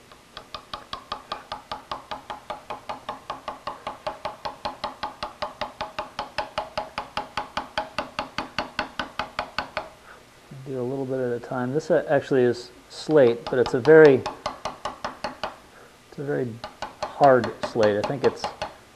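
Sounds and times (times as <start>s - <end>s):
hammer tapping chisel into slate: 0.3s - 10.0s, 13.1s - 15.6s, 16.4s - 18.8s.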